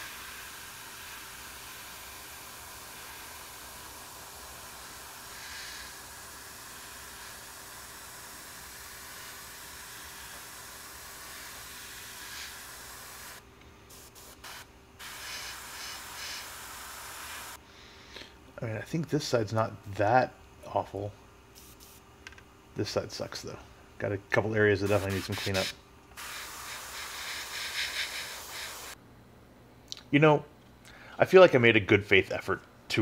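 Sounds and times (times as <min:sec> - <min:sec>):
airbrush spraying paint: 0:00.0 - 0:17.6, 0:21.6 - 0:22.0, 0:24.8 - 0:29.0.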